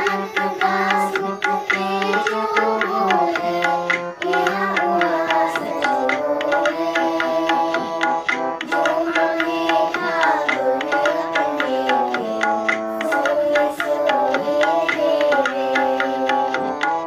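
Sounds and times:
gliding melody line: 0.0 - 16.2
harmonium chords: 0.0 - 17.0
tabla beat: 0.0 - 17.0.

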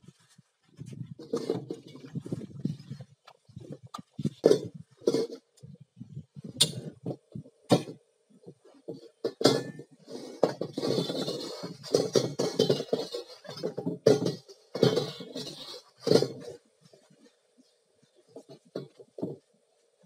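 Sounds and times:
wok clinking and scraping: 9.2 - 16.5.

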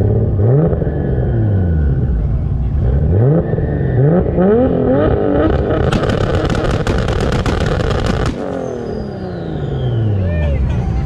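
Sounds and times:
exhaust crackles: 0.0 - 10.0
car engine revving: 0.0 - 10.6.

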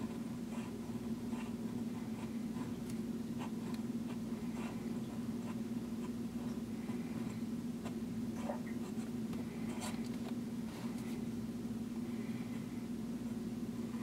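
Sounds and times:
fountain pen scratching on paper: 0.0 - 10.1
steady low hum: 0.0 - 14.0.

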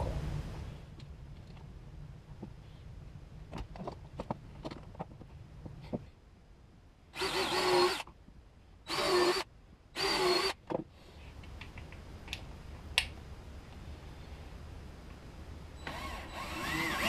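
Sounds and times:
cordless drill driving screws: 7.2 - 8.0, 8.9 - 9.4, 10.0 - 10.6, 15.8 - 17.0.

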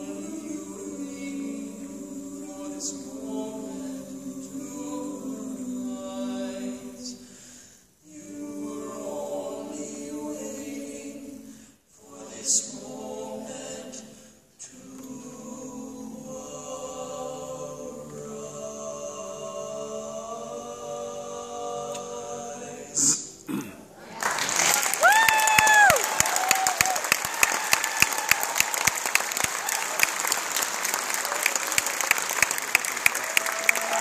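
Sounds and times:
male quartet singing a cappella: 0.0 - 7.4, 8.0 - 23.6.

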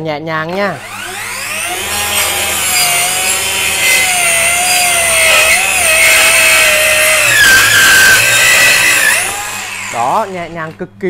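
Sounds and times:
circular saw cutting wood: 0.5 - 10.8.

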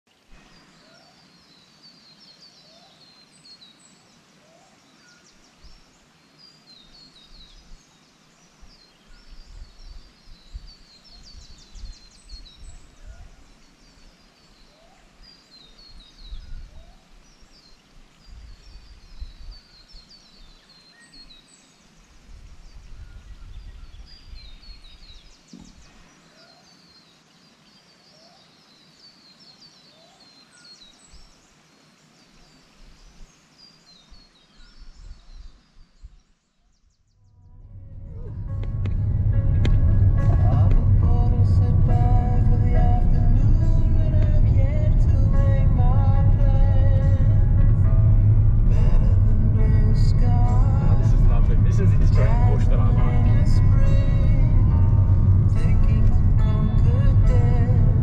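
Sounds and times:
small birds chirping: 0.1 - 37.6
low rumbling: 37.2 - 58.0.

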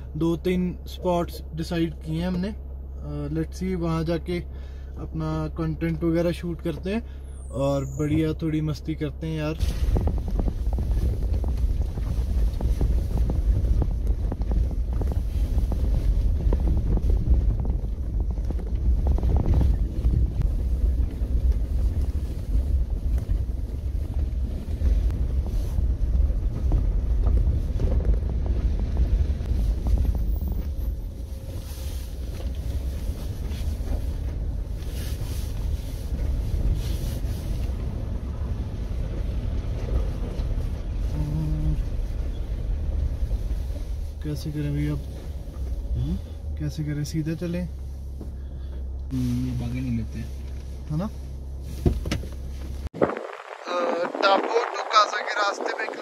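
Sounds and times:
engine and tyres droning: 0.0 - 53.6
wind noise: 9.6 - 44.2, 51.6 - 56.0.

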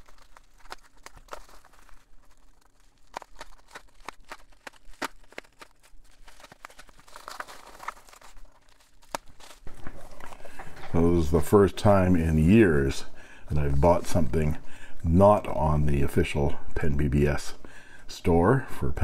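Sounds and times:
bubble wrap crackling: 0.0 - 10.7.

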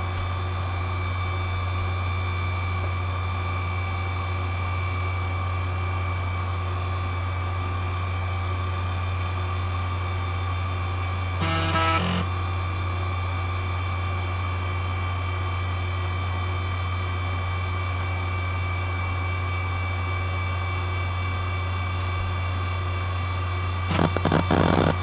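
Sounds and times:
hard drive spinning: 11.2 - 12.3, 23.9 - 25.0.

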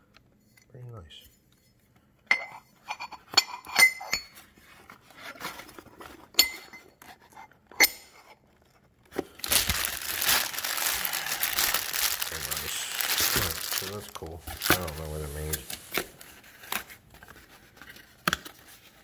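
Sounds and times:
plastic bag crinkling: 9.3 - 17.1.

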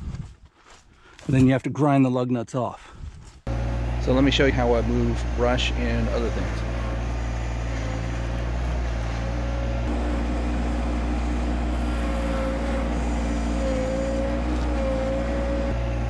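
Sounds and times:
hydraulic whine: 3.5 - 16.0
tractor diesel engine running: 3.5 - 16.0.

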